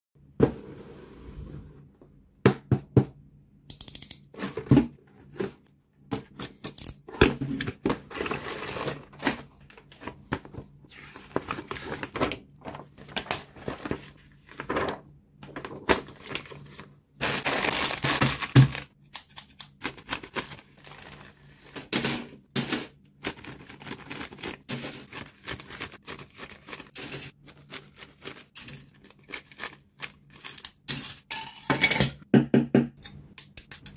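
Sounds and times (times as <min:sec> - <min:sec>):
plastic parts clicking on table: 0:03.7 - 0:04.3
paper and cardboard handled: 0:04.4 - 0:18.8
plastic bags crinkling: 0:08.0 - 0:18.9, 0:19.8 - 0:21.9, 0:23.1 - 0:30.6
scissors cutting plastic bag: 0:17.2 - 0:22.0, 0:22.6 - 0:30.9.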